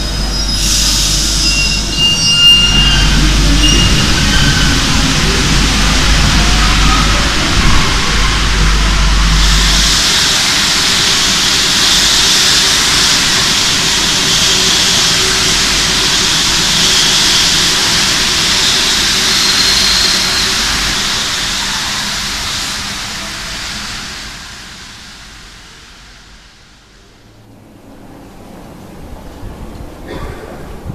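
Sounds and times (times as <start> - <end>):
train rushing into tunnel: 0.0 - 30.9.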